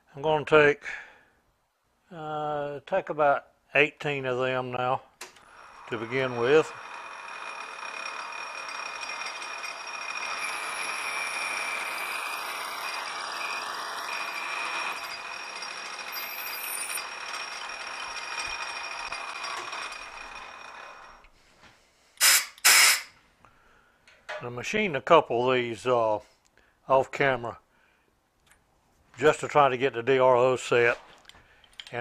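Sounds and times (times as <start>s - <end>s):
metal lathe cutting hiss and whine: 16.1s - 17.0s.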